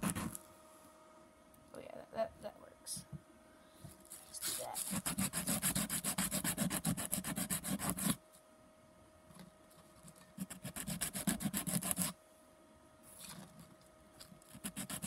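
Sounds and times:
wood sanding on sandpaper: 4.4 - 8.2, 10.6 - 12.1, 14.6 - 15.0.

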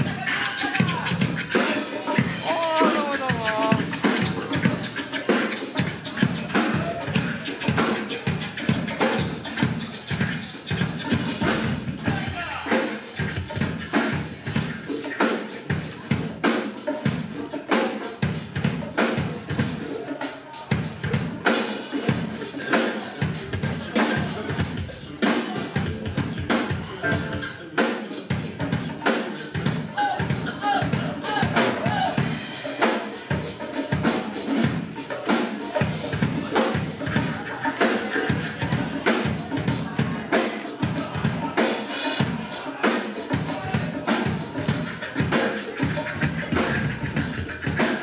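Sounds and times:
drum kit playing fast groove: 0.0 - 48.0.

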